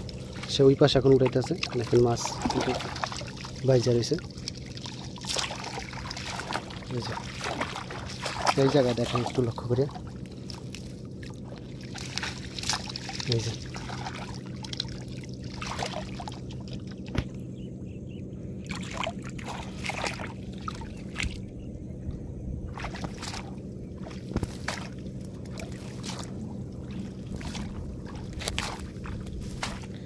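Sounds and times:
water splashing and dripping: 0.0s - 17.3s, 18.7s - 21.4s, 22.8s - 29.9s
steady low hum: 0.0s - 30.0s.

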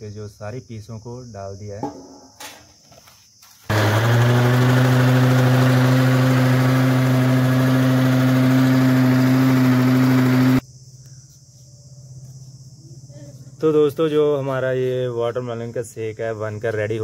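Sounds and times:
mixer grinder motor running: 3.7s - 10.6s.

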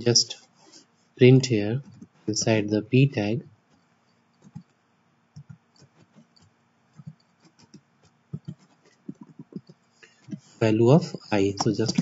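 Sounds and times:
keyboard typing: 4.4s - 4.7s, 5.4s - 10.6s, 11.2s - 12.0s.

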